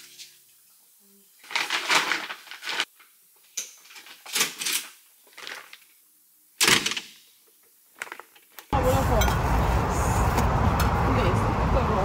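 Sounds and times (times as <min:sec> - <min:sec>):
bags rustling: 0:01.4 - 0:02.9.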